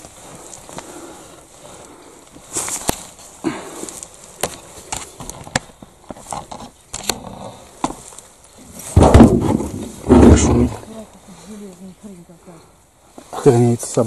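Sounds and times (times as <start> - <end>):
twigs snapping: 2.2 - 8.6.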